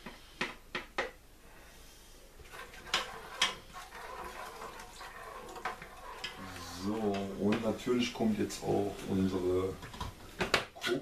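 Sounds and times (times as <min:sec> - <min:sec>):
utensil scraping in plastic cup: 0:02.4 - 0:07.8.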